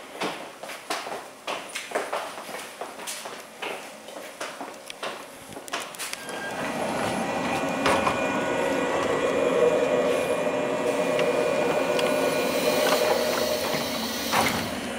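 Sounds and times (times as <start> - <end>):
electric train equipment hum: 6.1 - 14.9.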